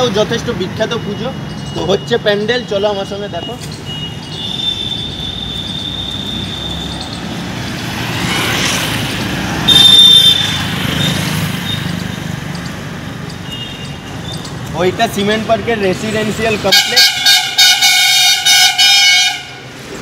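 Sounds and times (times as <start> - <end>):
traffic engines passing: 0.0 - 20.0.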